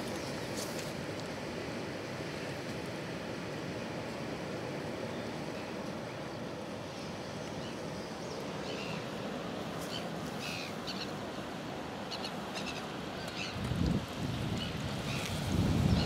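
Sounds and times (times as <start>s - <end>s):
wind noise on microphone: 13.4s - 16.0s.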